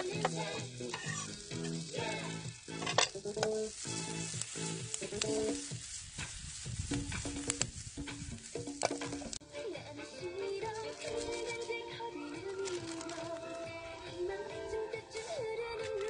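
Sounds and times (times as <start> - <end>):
food sizzling in a frying pan: 0.0 - 9.4
background music: 0.0 - 16.0
utensil clacking on pan: 2.8 - 3.6.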